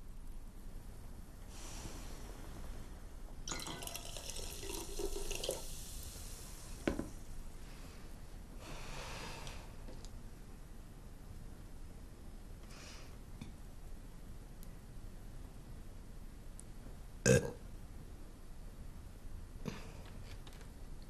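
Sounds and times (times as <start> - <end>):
liquid pouring into a glass: 3.5 - 6.1.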